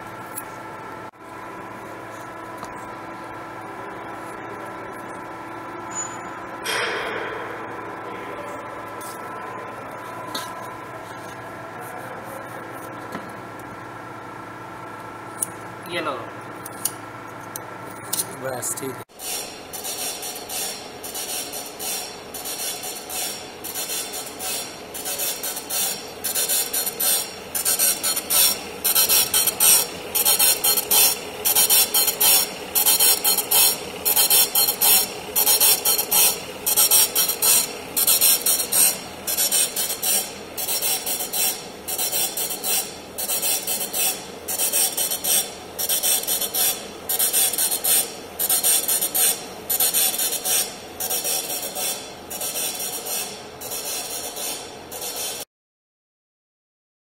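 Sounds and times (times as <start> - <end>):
boring machine running: 0.0 - 55.4
polishing wheel grinding metal: 19.2 - 55.4.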